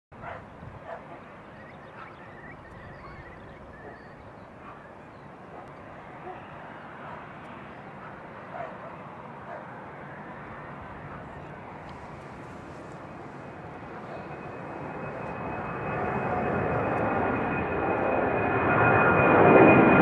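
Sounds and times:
animal calls: 0:00.2 - 0:06.5
distant jet engine rumble: 0:00.2 - 0:20.0
bird trilling: 0:01.2 - 0:05.4.

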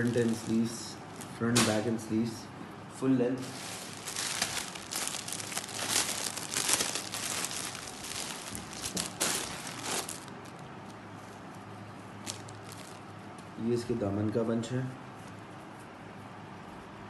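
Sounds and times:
plastic packaging crinkling: 0:00.0 - 0:02.0, 0:03.4 - 0:11.0, 0:12.2 - 0:13.2.

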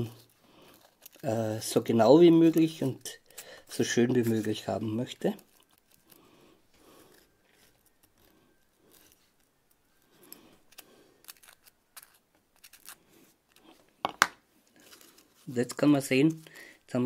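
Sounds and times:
hobby knife scraping foam: 0:10.2 - 0:13.8.

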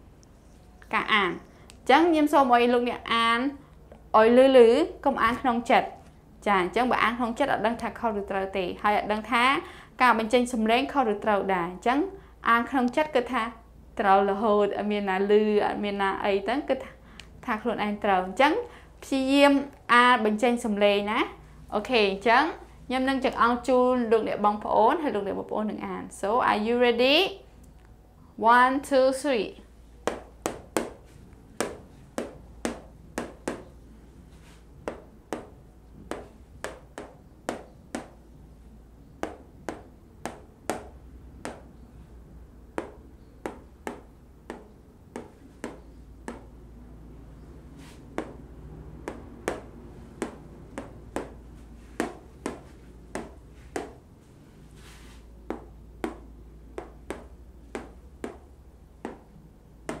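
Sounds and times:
marker tapping on whiteboard: 0:30.0 - 0:33.8, 0:34.4 - 0:38.4, 0:39.2 - 0:41.8, 0:42.7 - 0:46.6, 0:47.5 - 0:54.0, 0:55.4 - 1:00.0.

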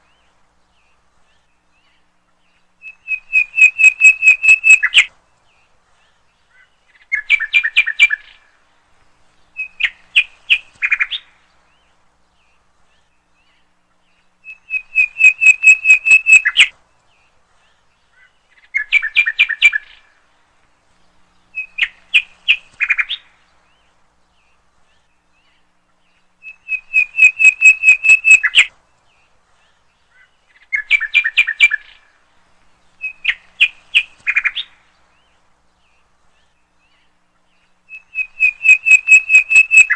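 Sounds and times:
rapid high bird-like chirps: 0:00.0 - 0:08.5, 0:09.5 - 0:20.2, 0:21.1 - 0:32.2, 0:32.9 - 0:39.9.

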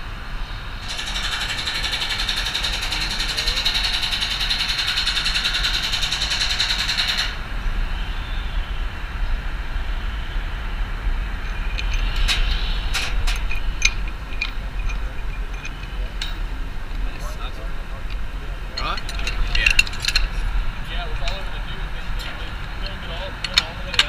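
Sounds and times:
wind buffeting microphone: 0:00.0 - 0:24.0
metal clinks and taps: 0:11.4 - 0:17.3, 0:18.1 - 0:21.5, 0:22.1 - 0:24.0.

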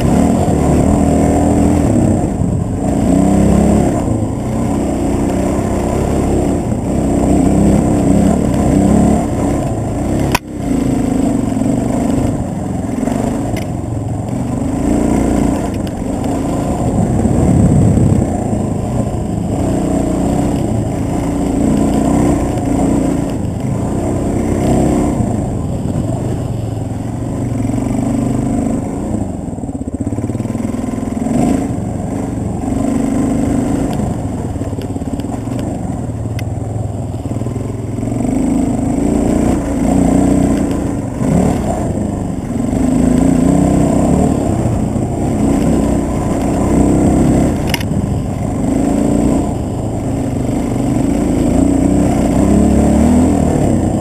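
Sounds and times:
dirt bike engine revving: 0:00.0 - 0:54.0
sharp click: 0:47.6 - 0:48.0.

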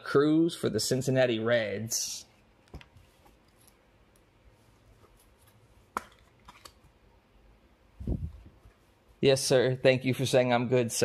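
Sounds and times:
cards clicking and rustling: 0:05.4 - 0:07.0.

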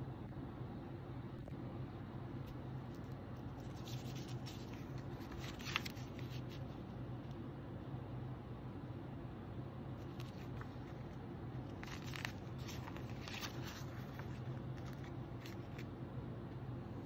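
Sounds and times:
steady low hum: 0:00.0 - 0:17.0
magazine pages rustling: 0:02.5 - 0:06.9, 0:10.0 - 0:16.0.

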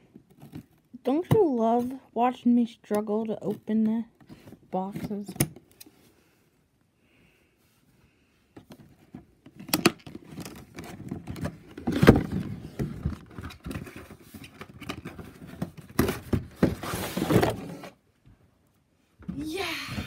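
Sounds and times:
cardboard packaging rustling: 0:08.8 - 0:18.0.

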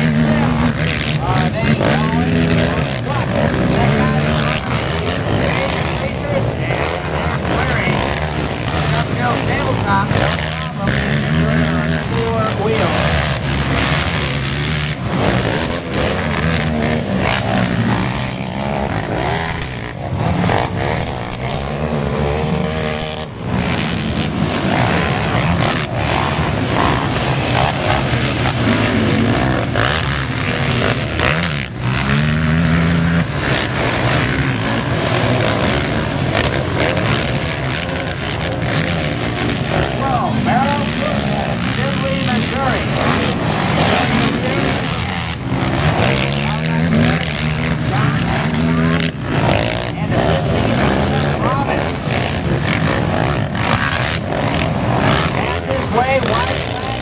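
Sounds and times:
atv engines revving: 0:00.0 - 0:57.0.

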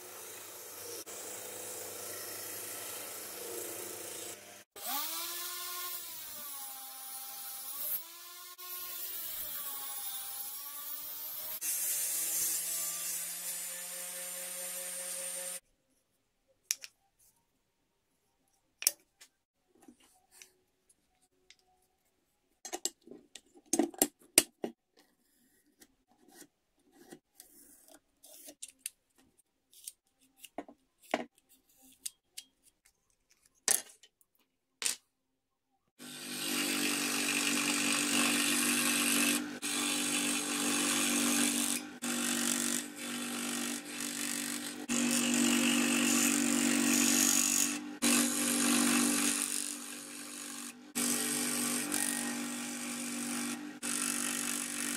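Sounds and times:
electric scroll saw buzzing: 0:00.0 - 0:15.6, 0:36.0 - 0:54.9.

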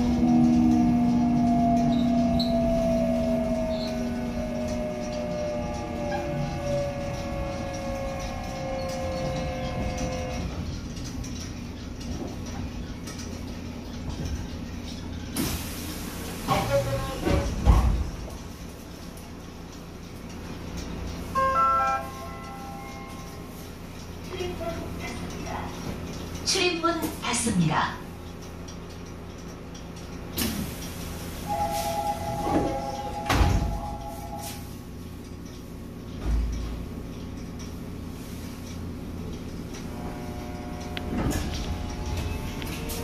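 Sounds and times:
door warning tone: 0:00.0 - 0:10.8, 0:21.3 - 0:23.6, 0:31.4 - 0:34.7, 0:39.8 - 0:43.0
train cabin rumble and hum: 0:00.0 - 0:43.0.

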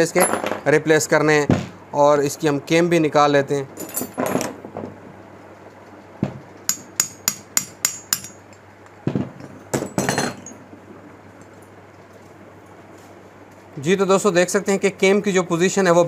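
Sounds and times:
metal part rattling: 0:03.8 - 0:04.6.

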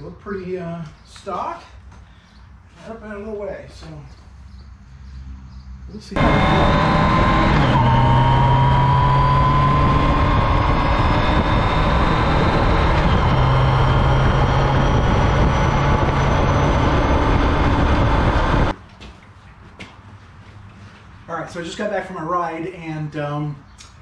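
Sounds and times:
faint whine: 0:06.2 - 0:18.7
motorcycle engine running: 0:06.2 - 0:18.7
wind rushing over microphone: 0:06.3 - 0:18.8.

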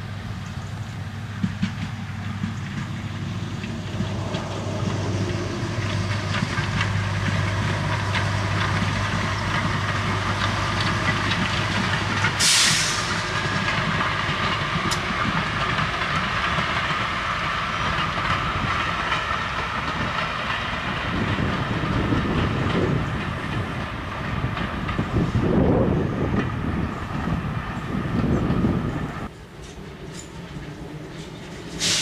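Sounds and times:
diesel locomotive droning: 0:00.0 - 0:32.0
wheels clattering over rail joints: 0:00.4 - 0:32.0
short loud hiss: 0:12.4 - 0:13.2, 0:31.8 - 0:32.0.

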